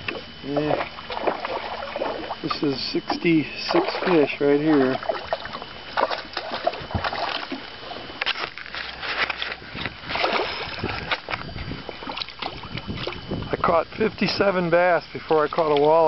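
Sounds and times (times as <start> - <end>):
water splashing and sloshing: 0.0 - 16.0.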